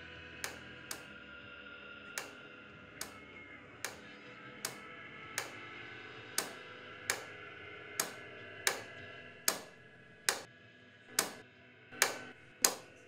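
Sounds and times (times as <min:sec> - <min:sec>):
faint musical drone: 0:00.0 - 0:13.0
sharp echoing ticks: 0:00.4 - 0:01.1, 0:02.2 - 0:02.4, 0:03.8 - 0:04.8, 0:05.4 - 0:05.6, 0:06.4 - 0:07.4, 0:08.0 - 0:10.5, 0:11.2 - 0:11.4, 0:12.0 - 0:13.0.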